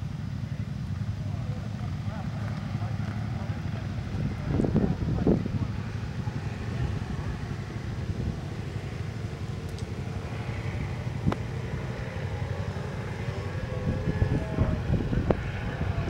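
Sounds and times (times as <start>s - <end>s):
vehicle engine idling: 0.0s - 16.0s.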